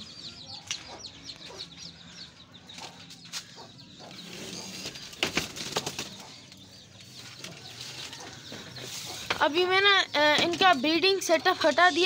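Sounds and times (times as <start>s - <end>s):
faint high chirping: 0.0s - 12.0s
hens clucking: 0.6s - 12.0s
sharp knocks and rattles: 4.8s - 6.4s, 10.2s - 10.9s.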